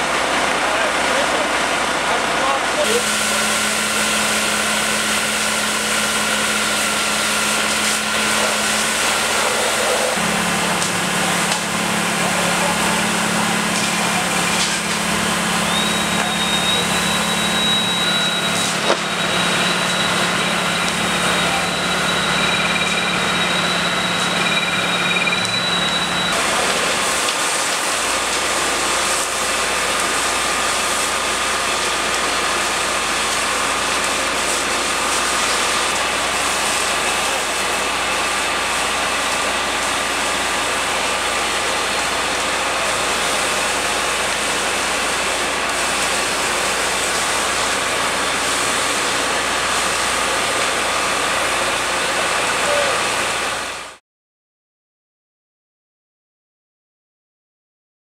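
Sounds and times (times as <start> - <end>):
fire engine pump engine: 0.0 - 54.0
thin high whistle: 15.6 - 20.2.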